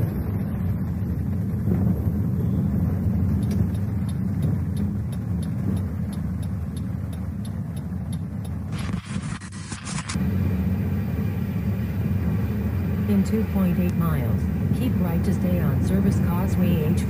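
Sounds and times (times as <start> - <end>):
car driving on highway: 0.0 - 9.2, 10.1 - 17.0
faint high ticking: 3.3 - 8.7.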